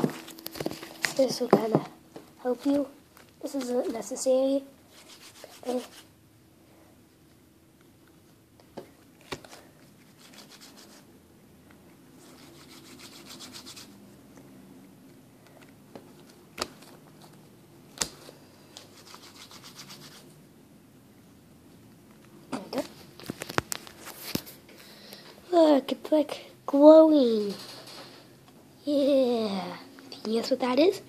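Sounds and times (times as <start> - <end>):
hands rubbing slime on table: 4.9 - 6.1.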